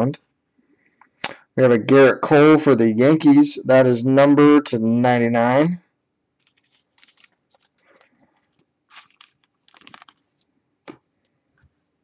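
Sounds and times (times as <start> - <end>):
trading cards rustling and clicking: 6.4 - 11.0.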